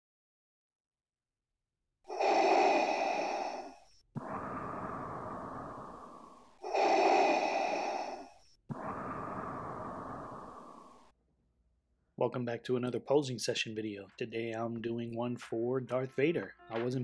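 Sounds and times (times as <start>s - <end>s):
hissing respirator breaths in: 2.1s - 11.1s
soft respirator breath out: 2.1s - 11.1s.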